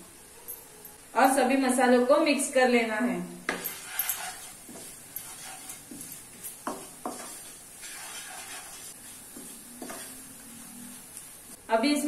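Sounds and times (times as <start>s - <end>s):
spatula scraping in pan: 3.5s - 11.1s
faint oil sizzle: 4.5s - 11.8s.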